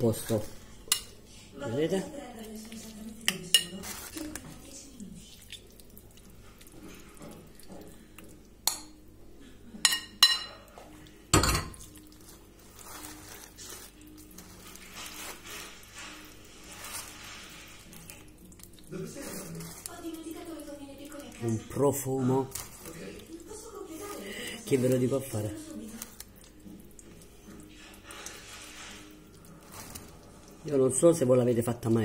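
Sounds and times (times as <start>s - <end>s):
metal spoon scraping a bowl: 27.4s - 30.0s.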